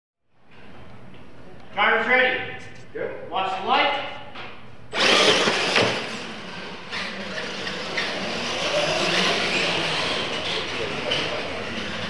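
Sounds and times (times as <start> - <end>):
toy truck motors and tyres: 4.9 - 12.0.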